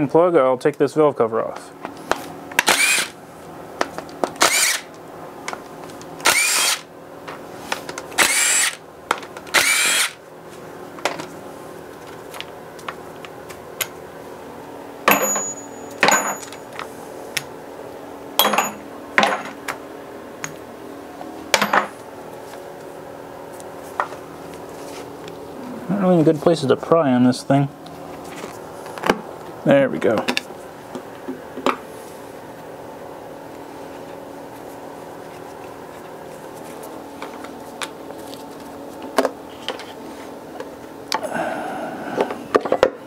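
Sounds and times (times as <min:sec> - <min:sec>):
power tool spinning out bolts: 0:02.6 - 0:03.1, 0:04.4 - 0:04.9, 0:06.2 - 0:06.8, 0:08.2 - 0:08.8, 0:09.5 - 0:10.2
clicks of bolts being handled: 0:15.1 - 0:16.9.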